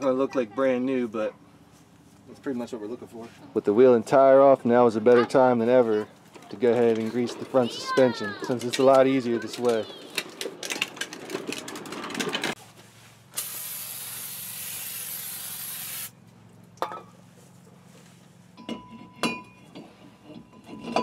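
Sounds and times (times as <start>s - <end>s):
aerosol spray can hissing: 13.4s - 16.2s.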